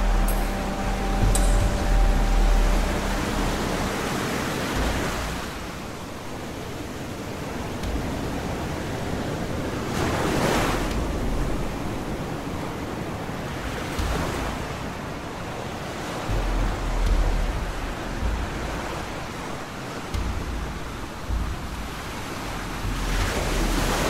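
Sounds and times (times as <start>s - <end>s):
deep rumbles: 0.0s - 5.8s, 10.7s - 12.5s, 16.3s - 24.0s
waves surging and breaking: 0.0s - 24.0s
wind: 0.0s - 24.0s.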